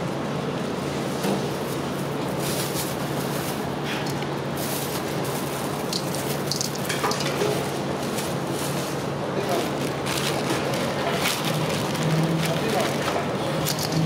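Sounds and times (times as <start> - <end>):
constant low hum: 0.0 - 14.0.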